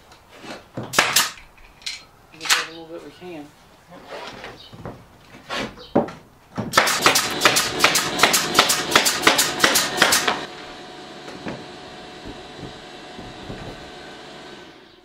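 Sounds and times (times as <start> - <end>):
pneumatic nailer firing: 0.9 - 1.5, 6.7 - 15.0.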